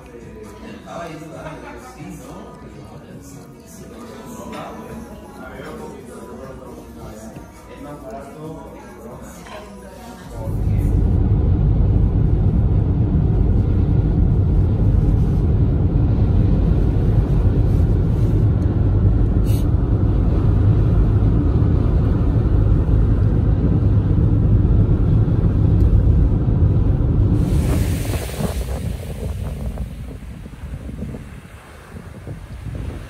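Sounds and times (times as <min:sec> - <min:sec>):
car interior road rumble: 0:10.5 - 0:33.0.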